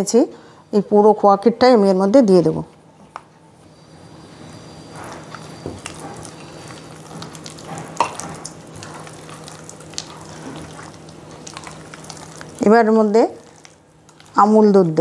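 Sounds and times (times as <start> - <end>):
hand squishing wet batter: 4.4 - 14.6.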